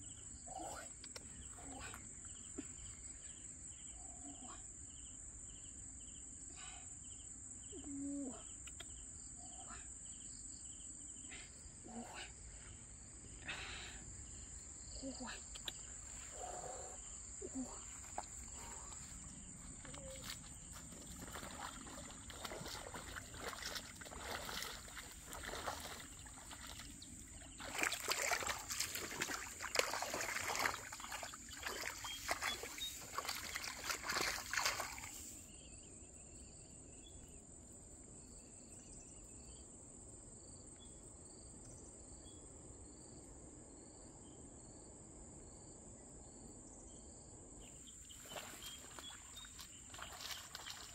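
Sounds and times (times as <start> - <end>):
crickets chirping: 0.0 - 50.9
feet splashing through muddy water: 17.4 - 35.3, 48.1 - 50.9.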